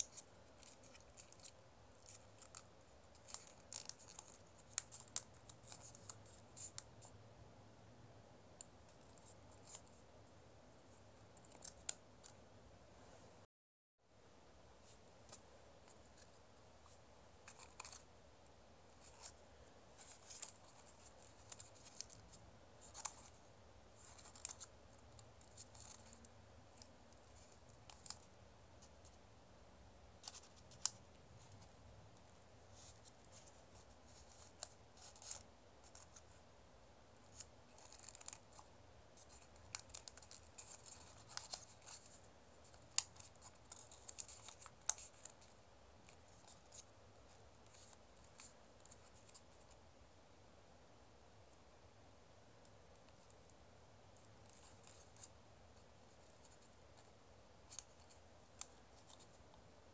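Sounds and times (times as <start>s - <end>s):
paper crackling and rustling: 0.0s - 6.8s, 37.2s - 46.9s.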